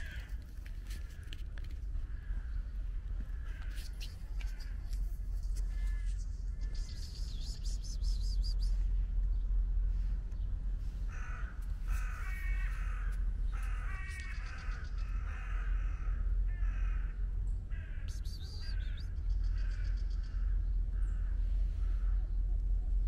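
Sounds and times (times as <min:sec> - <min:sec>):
low rumble: 0:00.0 - 0:23.0
bird harsh calls: 0:11.1 - 0:22.2.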